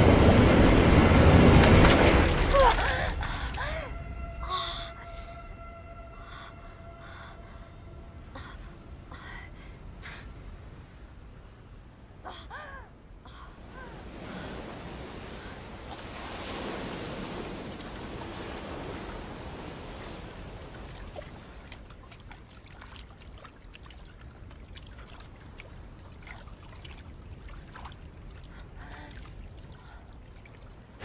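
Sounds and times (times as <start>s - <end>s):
sea water lapping: 1.0s - 3.8s, 13.5s - 31.0s
small splashes and drips: 1.6s - 3.7s, 15.9s - 16.6s, 17.4s - 31.0s.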